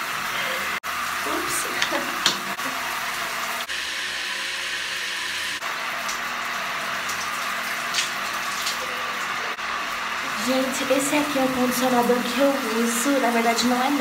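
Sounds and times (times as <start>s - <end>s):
shower water hissing: 0.0s - 14.0s.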